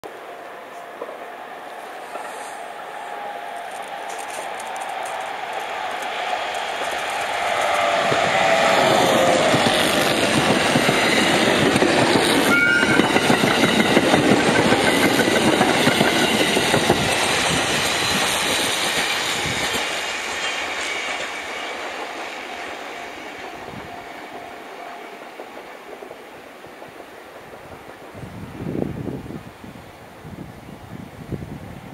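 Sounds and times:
train wheels clattering: 3.5 - 28.3.

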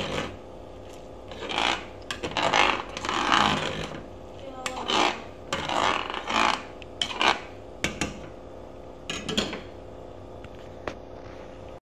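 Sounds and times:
spoon scraping and stirring pot: 0.0 - 8.4.

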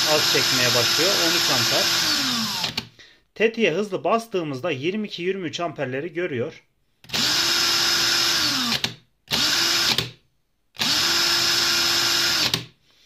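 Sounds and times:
cordless drill motor whirring: 0.0 - 2.9, 7.0 - 10.1, 10.8 - 12.7.

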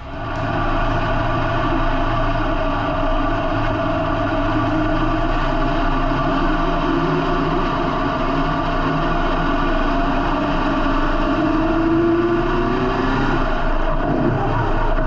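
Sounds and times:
race car engine running: 0.0 - 15.0.

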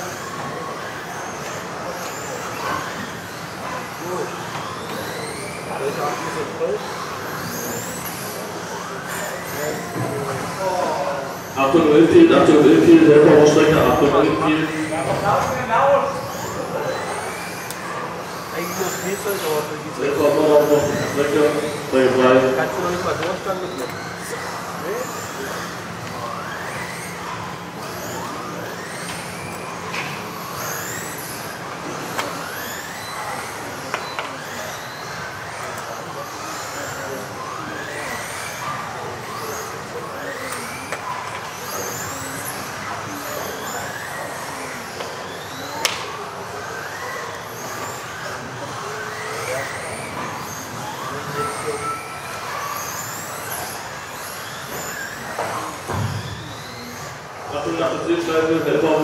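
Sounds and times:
rc car motors whining: 0.0 - 59.0
rc cars knocking: 0.1 - 5.6, 27.8 - 38.6, 39.2 - 57.2.

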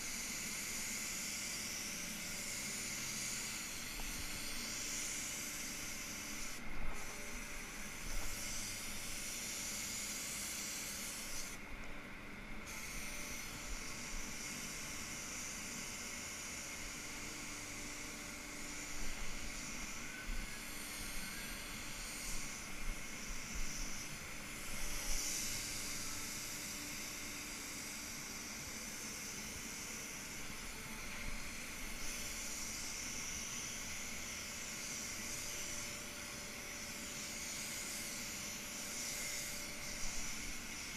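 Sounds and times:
paint spray gun hissing: 0.0 - 11.9, 12.6 - 40.9
steady low hum: 0.0 - 40.9.

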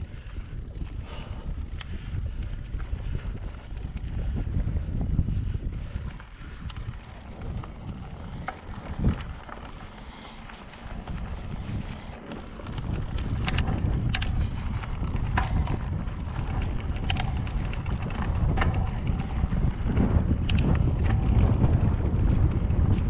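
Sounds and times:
wind buffeting microphone: 0.0 - 23.0
sharp clicks and rattles: 6.0 - 23.0.

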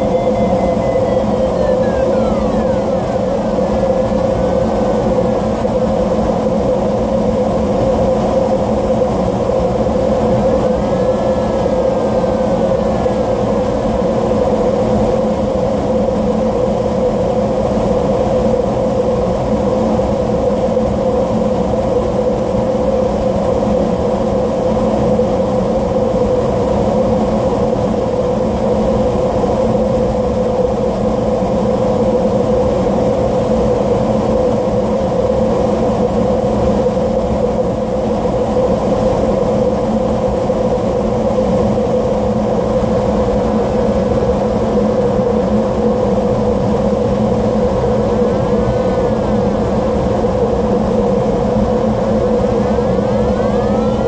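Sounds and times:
faint wavering high tones: 0.0 - 5.0, 53.1 - 54.0
constant hum: 0.0 - 54.0.

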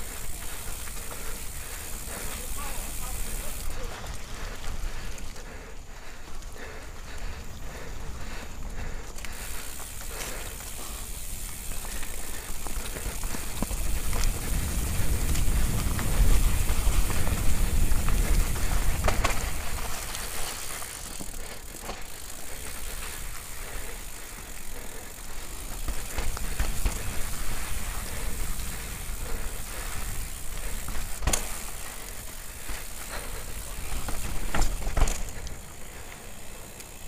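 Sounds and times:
bicycle tyres and frame rattling: 0.0 - 37.0
wind rumbling on microphone: 12.8 - 20.2.

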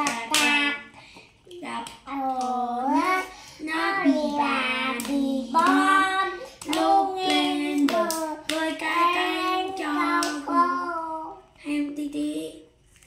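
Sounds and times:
hands clapping: 0.0 - 0.6, 4.9 - 5.9, 6.6 - 10.4
children singing: 2.8 - 11.3.

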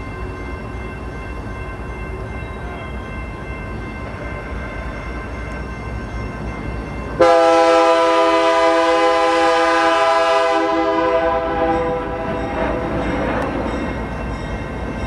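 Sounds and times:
diesel locomotive rumbling: 0.0 - 15.0
train air horn blast: 7.2 - 12.2.

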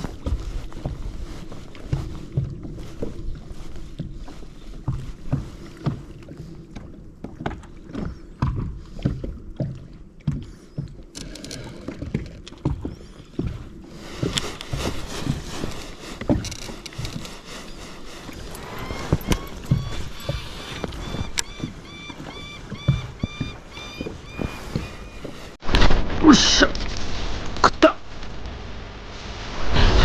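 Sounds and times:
small waves slapping a boat hull: 0.0 - 25.6.

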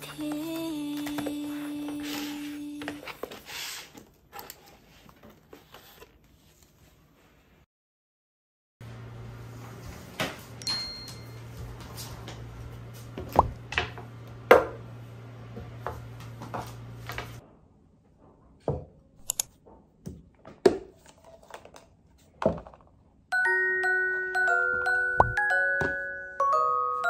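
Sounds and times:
light music with mallet melody: 23.3 - 27.0.

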